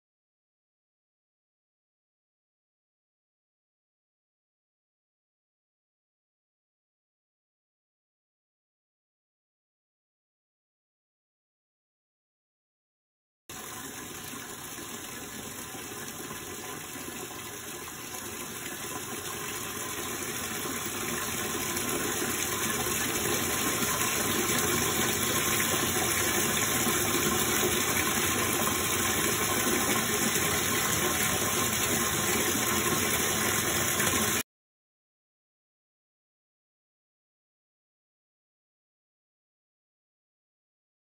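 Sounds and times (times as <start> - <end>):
tap water pouring into tub: 13.5 - 34.4.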